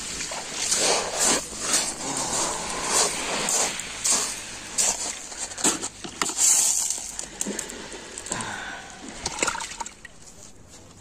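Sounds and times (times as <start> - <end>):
footsteps on pebbles: 0.0 - 7.7
steady hiss: 0.0 - 9.3.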